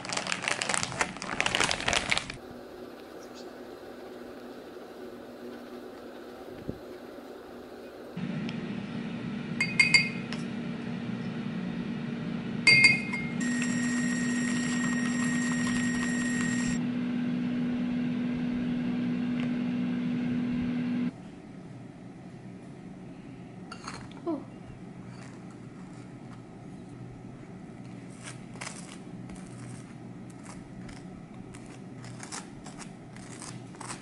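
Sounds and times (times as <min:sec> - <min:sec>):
low hum: 0:02.3 - 0:33.2
spoon clinking on glass and mug: 0:09.6 - 0:10.2, 0:12.7 - 0:13.3
electric milk frother whine: 0:13.4 - 0:21.1.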